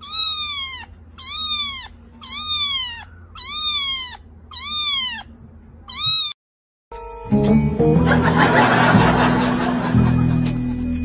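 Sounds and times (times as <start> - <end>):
kitten meowing: 0.0 - 6.4.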